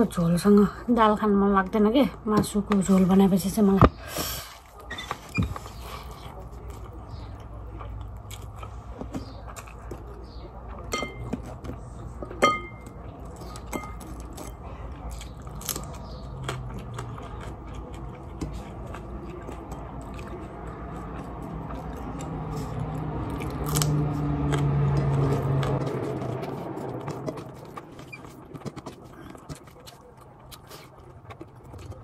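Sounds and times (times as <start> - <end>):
chewing and biting: 4.6 - 32.0.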